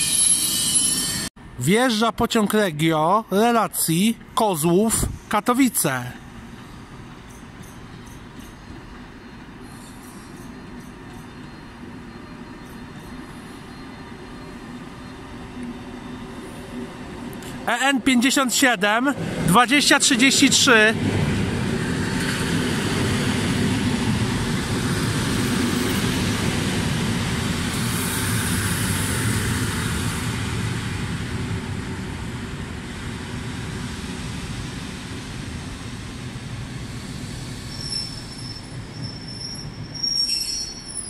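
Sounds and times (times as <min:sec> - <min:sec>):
train wheels rumbling on rail: 0:06.0 - 0:41.0
thin high squeal: 0:09.6 - 0:15.2, 0:37.7 - 0:41.0.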